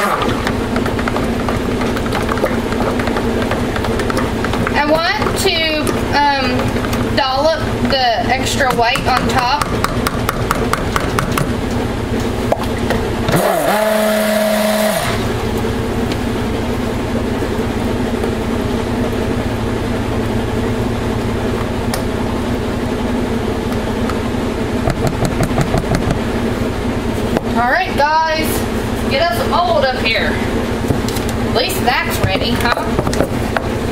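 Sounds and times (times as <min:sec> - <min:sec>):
washing machine rumbling: 0:00.0 - 0:14.0, 0:14.7 - 0:33.9
stick blender motor whine: 0:13.2 - 0:15.4.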